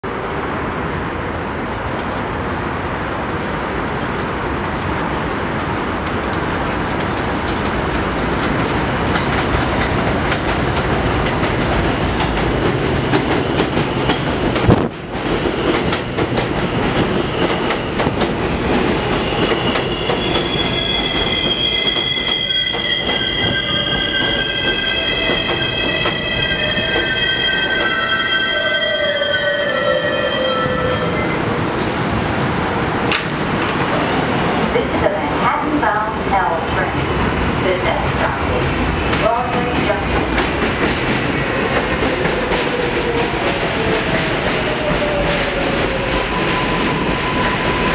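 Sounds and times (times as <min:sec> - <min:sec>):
train wheels rumbling on rail: 0:00.1 - 0:47.9.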